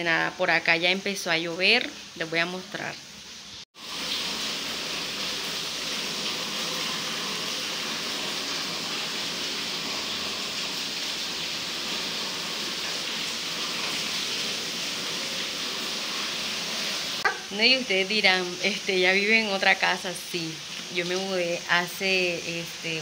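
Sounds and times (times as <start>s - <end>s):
steady rain falling: 3.8s - 17.2s.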